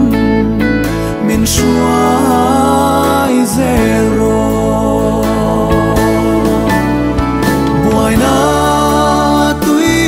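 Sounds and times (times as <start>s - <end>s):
gospel song: 0.0s - 10.0s.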